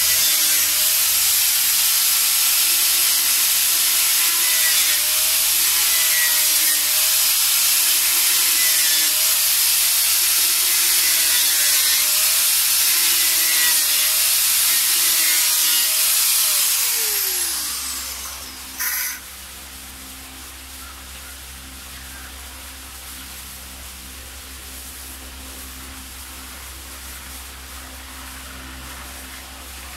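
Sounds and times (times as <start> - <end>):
grinder spinning down: 0.0 - 19.2
electric grinder cutting: 0.0 - 19.3
short scraping burst: 12.9 - 19.3.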